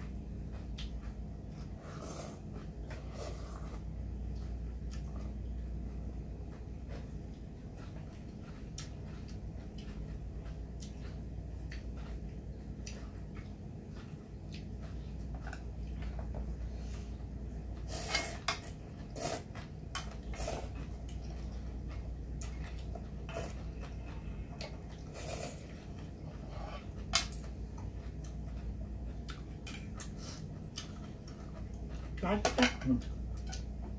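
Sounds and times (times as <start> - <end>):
steady low hum: 0.0 - 33.9.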